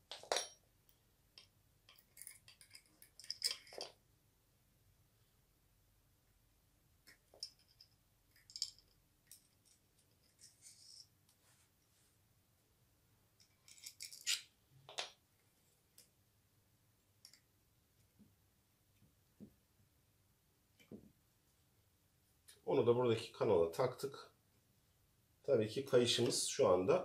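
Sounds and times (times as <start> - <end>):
small clicks of handled parts: 0.1 - 4.0, 7.1 - 11.4, 13.4 - 15.2, 17.2 - 17.5.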